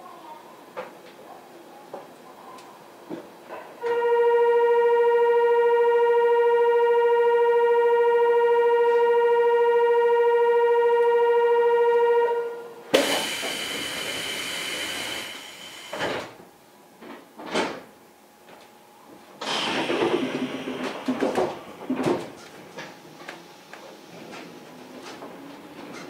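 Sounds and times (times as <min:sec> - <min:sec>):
train doors closing hiss: 0:12.8 - 0:16.5, 0:19.4 - 0:26.0
steady electronic tone: 0:13.0 - 0:16.1.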